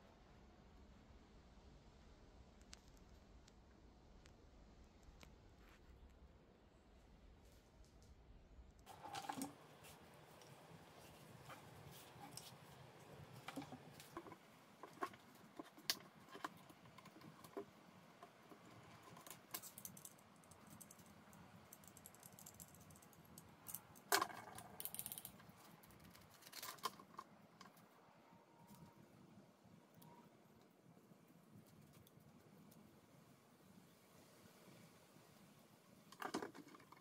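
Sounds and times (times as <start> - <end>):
clicks and rattles of parts handled: 13.4 - 27.8, 36.1 - 37.0.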